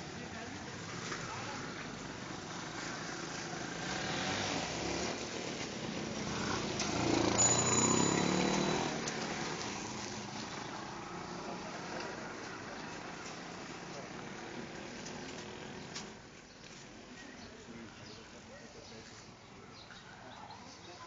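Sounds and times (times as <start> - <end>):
road and street noise: 0.0 - 21.0
motorcycle engine passing: 0.7 - 16.2.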